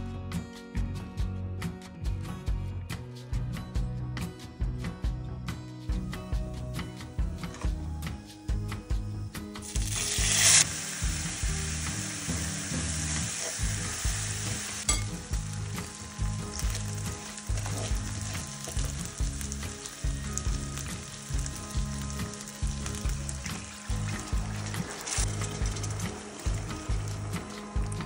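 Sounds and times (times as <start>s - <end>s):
grains sizzling in a frying pan: 9.6s - 28.0s.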